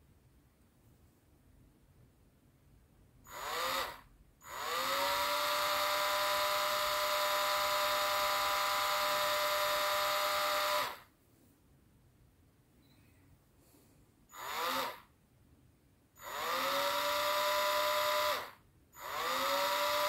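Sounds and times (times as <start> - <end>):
rotary tool whining: 3.3 - 11.1, 14.3 - 15.1, 16.2 - 20.0.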